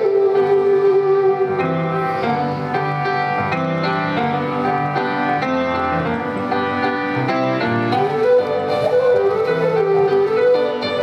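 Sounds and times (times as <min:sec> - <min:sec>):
flute held note: 0:00.0 - 0:02.8, 0:07.9 - 0:11.0
piano chords: 0:00.0 - 0:11.0.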